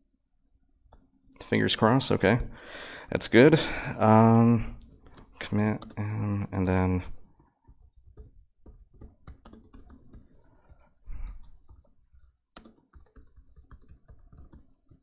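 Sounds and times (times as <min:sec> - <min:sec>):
keyboard keystroke clicks: 0:06.6 - 0:10.3, 0:12.6 - 0:15.0.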